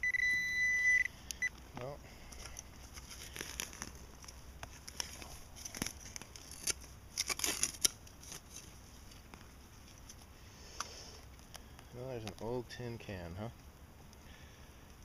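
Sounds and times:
soil being dug and scraped: 2.2s - 11.2s.

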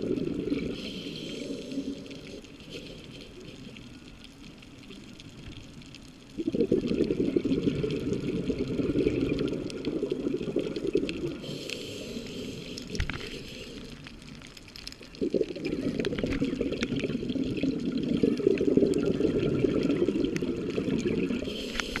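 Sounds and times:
diver exhaling bubbles underwater: 0.0s - 3.7s, 6.4s - 13.8s, 15.1s - 22.0s
soft hiss of inhaling: 0.5s - 4.2s, 11.3s - 15.2s, 21.4s - 22.0s.

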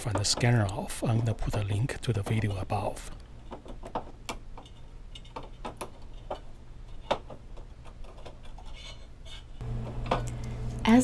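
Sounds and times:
low steady hum: 6.0s - 11.0s.

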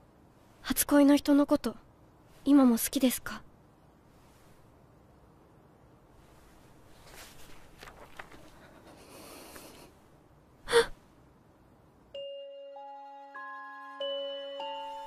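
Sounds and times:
soft rustling: 6.1s - 10.1s
girl gasping: 10.6s - 11.0s
bell-like music notes: 12.2s - 15.0s.

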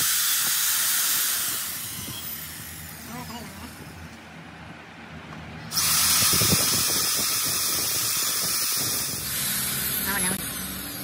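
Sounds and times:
power drill running: 0.0s - 3.2s, 5.7s - 11.0s.

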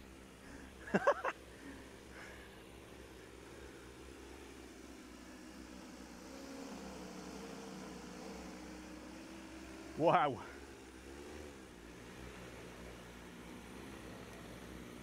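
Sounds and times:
drone motors humming: 0.0s - 15.0s.

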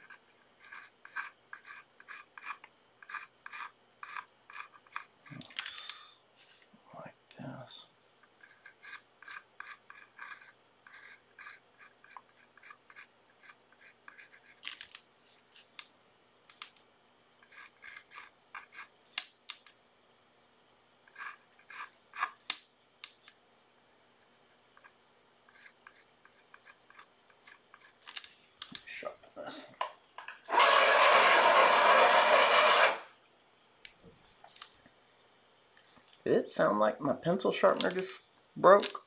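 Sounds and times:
paintbrush scratching on paper: 0.0s - 5.1s, 8.4s - 14.6s, 17.4s - 19.0s, 21.1s - 22.4s, 23.9s - 28.0s.

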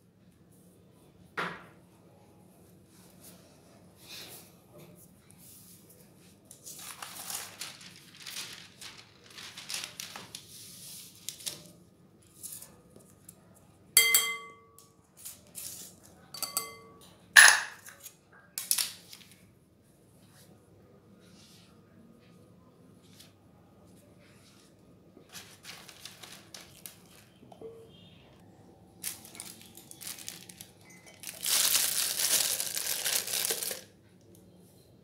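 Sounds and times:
metal sieve rustling: 6.7s - 11.0s
sieve knocking against glass bowl: 14.0s - 14.6s.

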